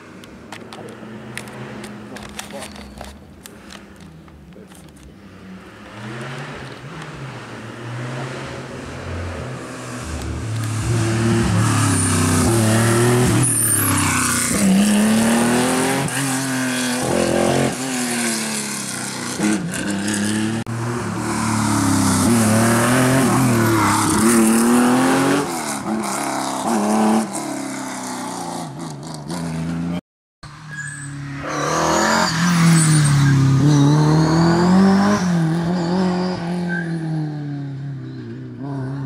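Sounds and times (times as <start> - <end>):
rally car engine at full throttle: 4.5 - 30.0, 31.3 - 39.0.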